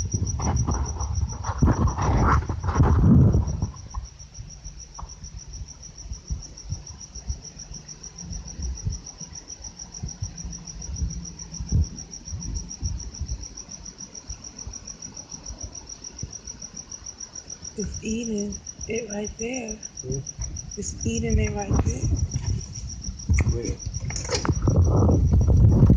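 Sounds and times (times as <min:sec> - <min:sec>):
cricket chirping: 0:00.0 - 0:25.9
faint low thumps: 0:09.9 - 0:13.6, 0:19.4 - 0:25.9.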